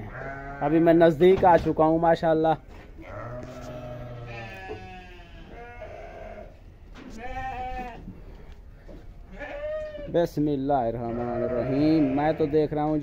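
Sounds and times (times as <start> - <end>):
sheep bleating: 0.0 - 0.9, 3.0 - 8.0, 9.3 - 10.2, 11.0 - 12.8.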